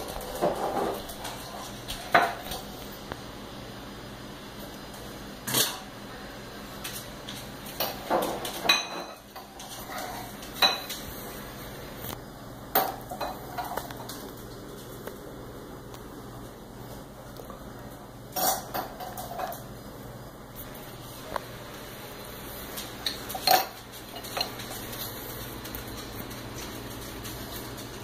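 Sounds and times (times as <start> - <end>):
jars and utensils clinking: 18.4 - 19.6, 23.0 - 24.8.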